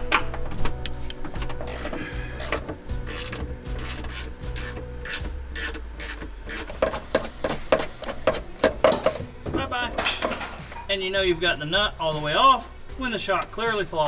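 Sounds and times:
hand ratchet clicking: 0:01.1 - 0:09.2.

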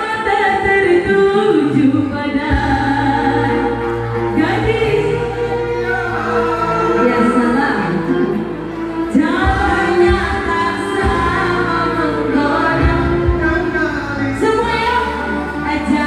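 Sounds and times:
woman singing pop song: 0:00.0 - 0:16.0
backing music with low beat: 0:08.0 - 0:16.0.

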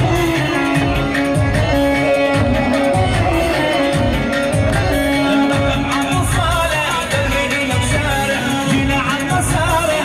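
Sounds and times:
held melody notes: 0:00.0 - 0:06.8
steady drum beat: 0:00.0 - 0:10.0.

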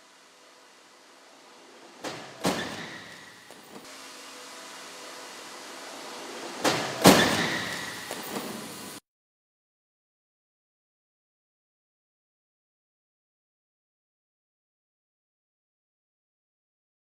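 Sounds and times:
rattling hiss: 0:00.0 - 0:09.0
car crash impact: 0:06.6 - 0:08.7.

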